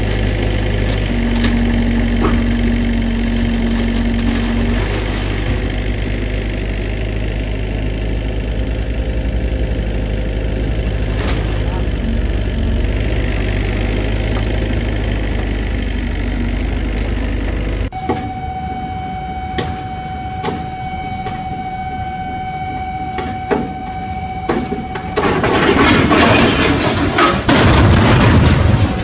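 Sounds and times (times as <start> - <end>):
excavator engine droning: 0.0 - 29.0
container crashing and grinding: 3.5 - 5.6, 25.0 - 29.0
high alarm tone: 17.9 - 26.6.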